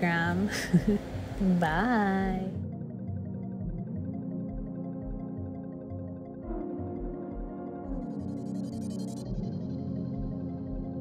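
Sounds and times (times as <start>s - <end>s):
ambient synthesizer music: 0.0s - 11.0s.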